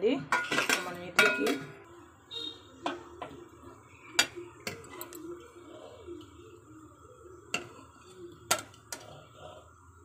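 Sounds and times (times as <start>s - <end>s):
metal utensil clinking on plate: 0.3s - 1.7s.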